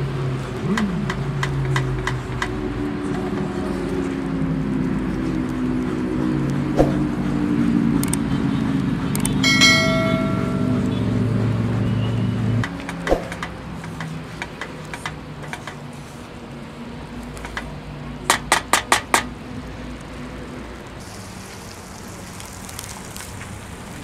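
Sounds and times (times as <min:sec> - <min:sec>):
faint sizzling: 0:20.7 - 0:24.0.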